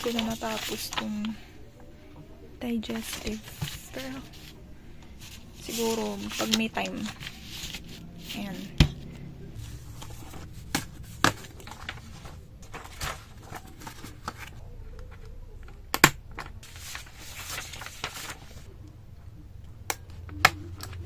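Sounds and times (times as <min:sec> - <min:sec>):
paper sheets rustling: 0:00.0 - 0:01.5, 0:02.8 - 0:14.6, 0:16.6 - 0:18.7.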